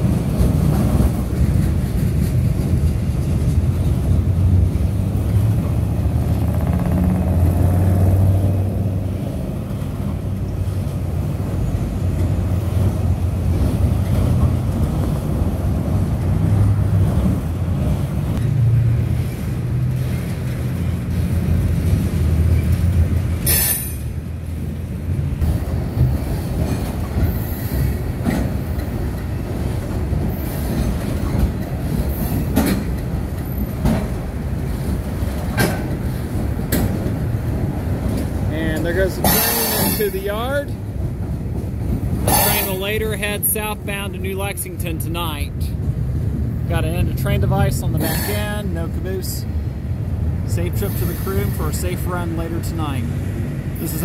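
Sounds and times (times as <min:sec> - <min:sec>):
train wheels rumbling on rail: 0:00.0 - 0:54.0
sharp clicks from wheels: 0:24.8 - 0:40.0.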